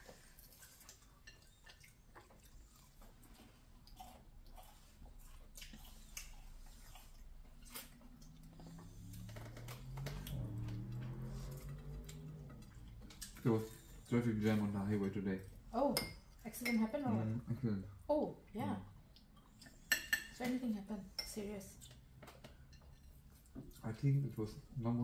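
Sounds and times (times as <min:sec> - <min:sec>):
people chewing food: 0:00.0 - 0:16.4, 0:17.1 - 0:25.0.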